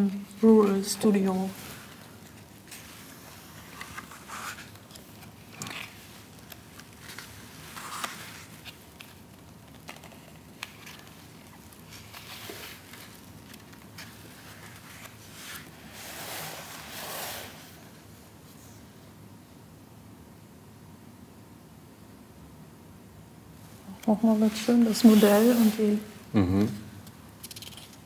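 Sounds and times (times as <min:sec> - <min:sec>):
book pages rustling: 0:00.3 - 0:17.9, 0:24.0 - 0:26.1.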